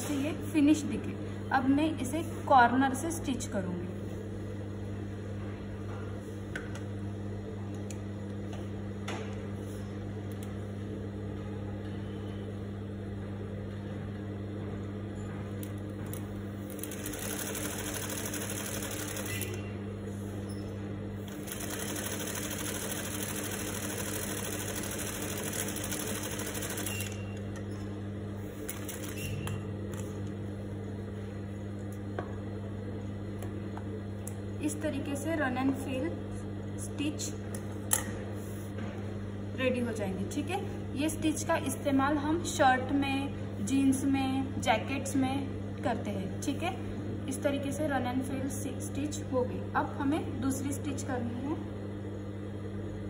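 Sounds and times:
steady low hum: 0:00.0 - 0:53.0
sewing machine motor humming: 0:16.6 - 0:19.7, 0:21.2 - 0:27.4, 0:28.6 - 0:29.3.

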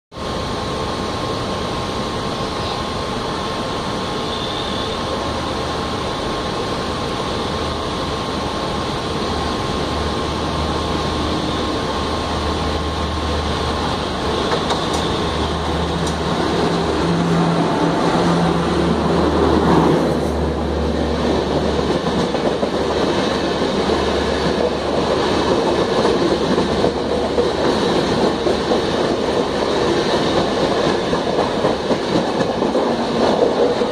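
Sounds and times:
electric locomotive drone: 0:00.1 - 0:33.9
train wheels clattering on rails: 0:12.5 - 0:33.9.

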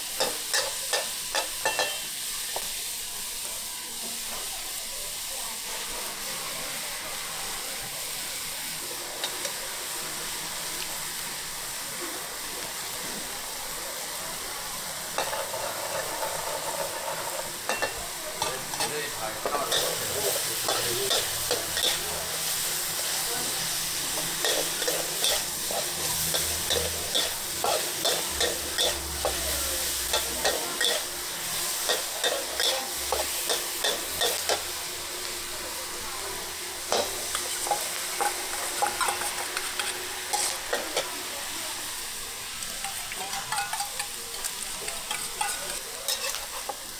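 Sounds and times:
food sizzling in a pan: 0:00.0 - 0:46.9
metal spatula scraping pan: 0:24.1 - 0:31.1, 0:36.9 - 0:41.1, 0:44.8 - 0:46.8.

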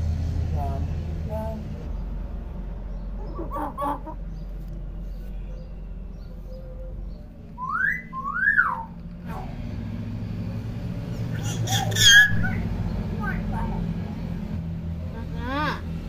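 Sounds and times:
myna whistling: 0:06.3 - 0:09.0.

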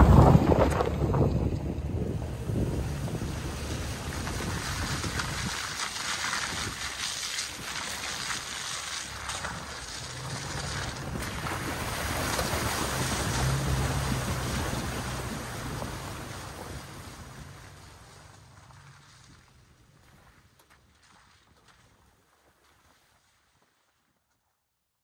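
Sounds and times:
low rumble: 0:00.0 - 0:06.9
wind on microphone: 0:00.0 - 0:08.4
rushing water: 0:00.0 - 0:20.4.

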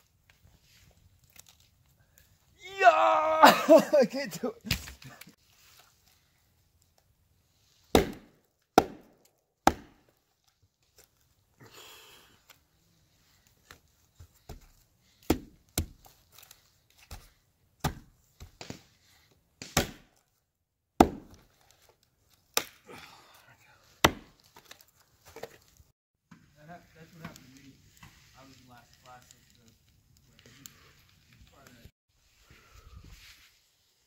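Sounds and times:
hatchet chopping wood: 0:07.9 - 0:10.1, 0:15.2 - 0:16.0, 0:17.8 - 0:18.8, 0:19.6 - 0:20.1, 0:21.0 - 0:21.4, 0:22.5 - 0:22.8, 0:24.0 - 0:24.5.

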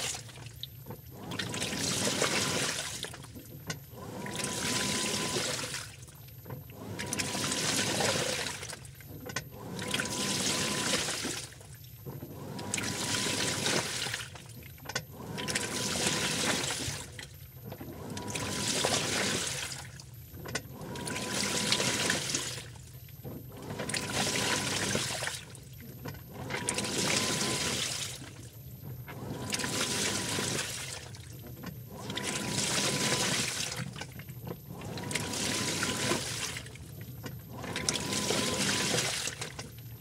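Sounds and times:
washing machine drum turning: 0:14.9 - 0:16.8, 0:28.9 - 0:39.6.

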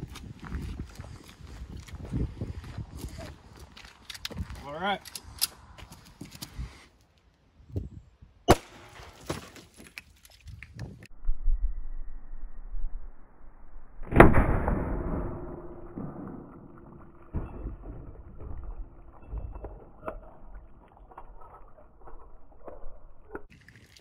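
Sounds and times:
pistol shot: 0:08.5 - 0:09.1, 0:14.0 - 0:16.6.

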